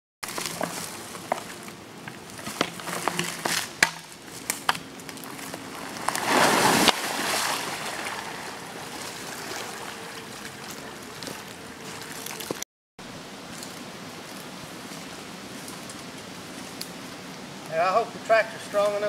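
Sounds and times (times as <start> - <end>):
sharp knocks on a log: 2.6 - 4.1
water sloshing: 5.1 - 12.6
log splashing into water: 5.2 - 10.8.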